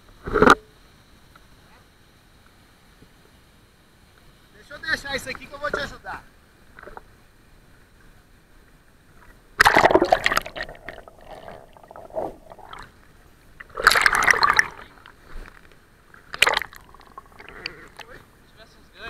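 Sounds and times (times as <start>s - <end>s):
water splashing and sloshing: 9.3s - 18.2s.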